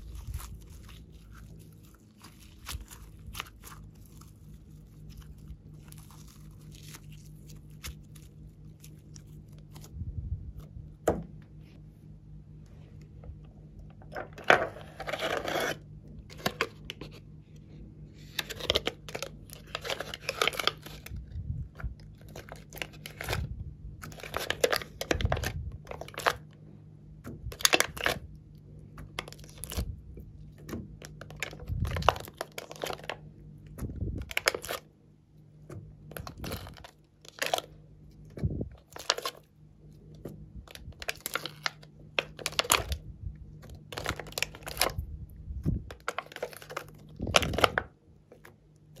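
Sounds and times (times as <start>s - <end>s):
plastic tray crinkling: 18.3s - 21.2s, 21.8s - 26.4s, 30.6s - 33.3s, 34.2s - 34.8s, 36.1s - 37.7s, 38.7s - 39.5s, 40.2s - 43.0s, 43.6s - 45.0s, 45.9s - 49.0s.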